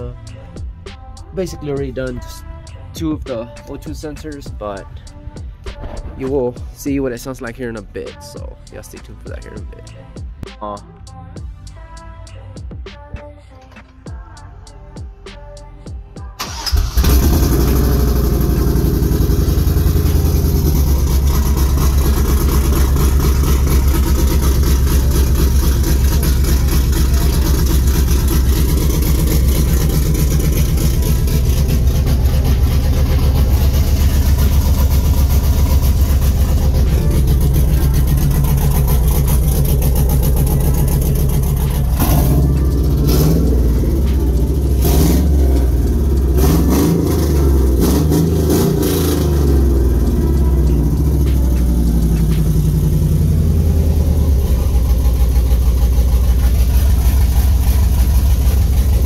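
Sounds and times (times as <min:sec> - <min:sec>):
truck engine idling and revving: 0:00.0 - 0:59.0
exhaust cracks: 0:16.4 - 0:59.0.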